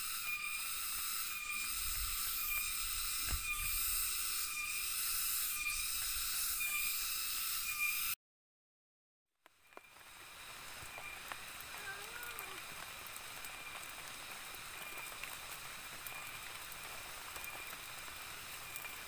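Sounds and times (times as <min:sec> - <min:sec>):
high-pitched buzzing drone: 0:00.0 - 0:08.2.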